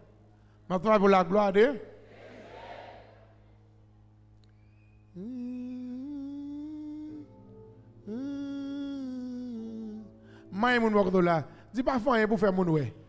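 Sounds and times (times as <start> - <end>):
man humming held notes: 4.5 - 11.1.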